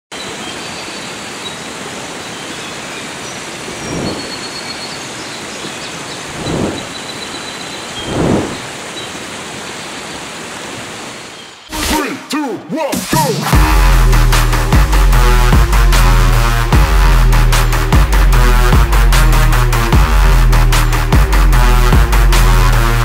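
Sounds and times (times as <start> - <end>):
steady rushing noise: 3.5 - 5.2, 6.1 - 9.0
whooshes: 3.8 - 4.5, 6.3 - 7.0, 8.0 - 8.8
music with a beat: 13.0 - 23.0.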